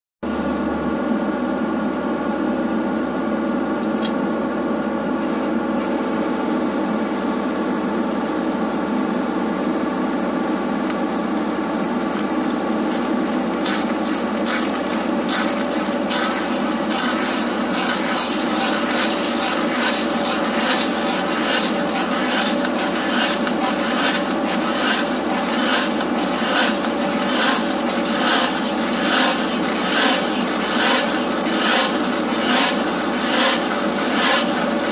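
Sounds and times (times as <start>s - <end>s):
wood scraping and chipping: 12.0s - 34.9s.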